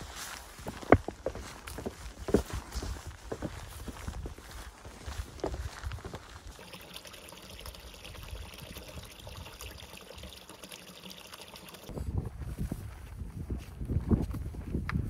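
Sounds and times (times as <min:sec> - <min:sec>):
footsteps: 0:00.0 - 0:06.6
wind: 0:00.0 - 0:15.0
water trickling into a pool: 0:06.2 - 0:11.9.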